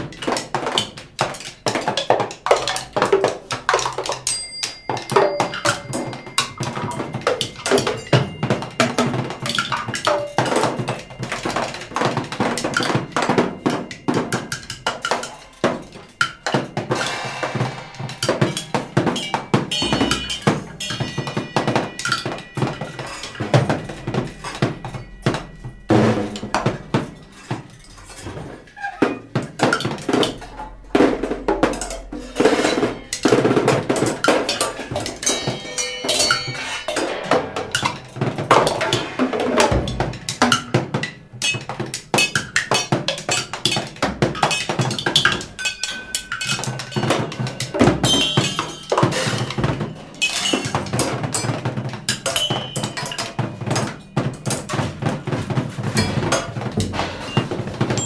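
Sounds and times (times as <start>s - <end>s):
drums and percussion strikes: 0.0s - 58.0s
high sustained ringing tones: 34.8s - 38.2s.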